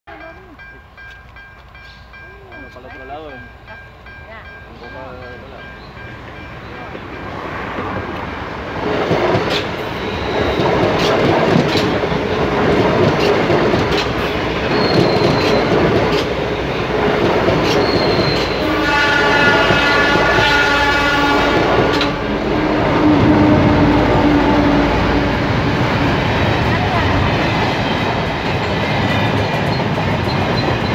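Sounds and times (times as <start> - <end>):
train wheels clacking over rail joints: 7.7 - 20.6, 25.7 - 30.9
high wheel squeals: 9.7 - 11.1, 14.3 - 15.9, 17.6 - 19.0
train horn: 17.7 - 26.1.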